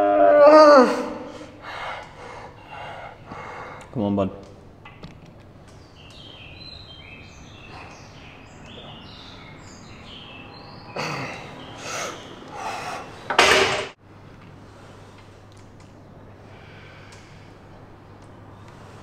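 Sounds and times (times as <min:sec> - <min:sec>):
forceful breaths straining: 0:00.8 - 0:04.0, 0:10.6 - 0:13.4.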